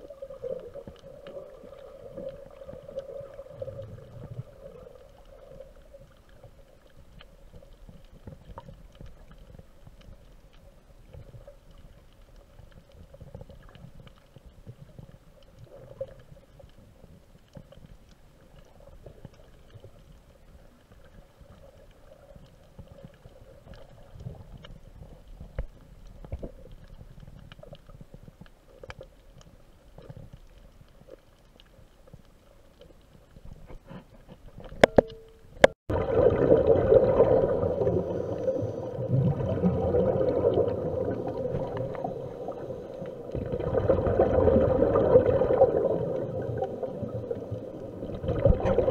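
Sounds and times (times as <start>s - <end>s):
faint steady hum: 0.0s - 48.9s
underwater water rumble: 0.0s - 48.9s
faint clicks: 0.1s - 35.8s.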